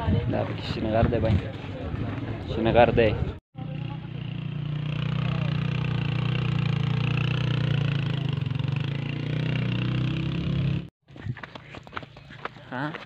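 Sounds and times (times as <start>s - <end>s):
motorcycle engine running: 3.6s - 10.9s.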